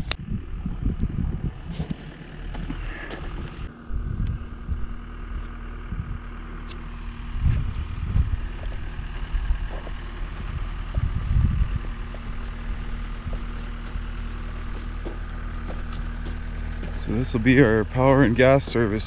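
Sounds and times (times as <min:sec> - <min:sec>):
wind buffeting microphone: 0:00.0 - 0:02.1, 0:03.3 - 0:06.3, 0:07.3 - 0:19.0
engine idling: 0:00.0 - 0:19.0.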